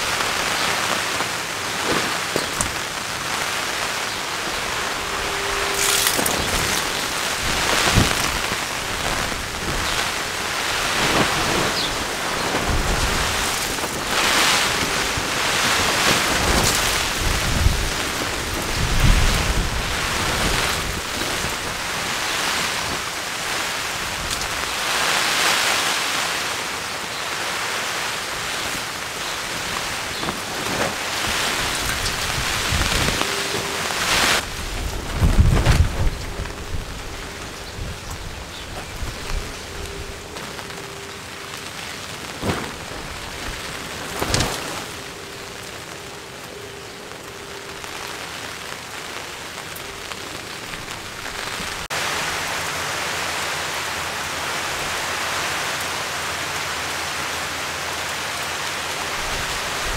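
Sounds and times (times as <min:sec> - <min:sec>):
wind buffeting microphone: 0:00.0 - 0:25.4, 0:28.2 - 0:45.7
rain on nylon tarps: 0:00.0 - 0:59.9
wind gusts: 0:00.0 - 0:59.9.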